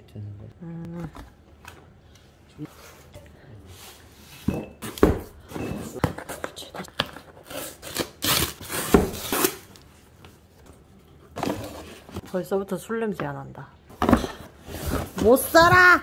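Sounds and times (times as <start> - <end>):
packing tape tearing: 7.4 - 9.8.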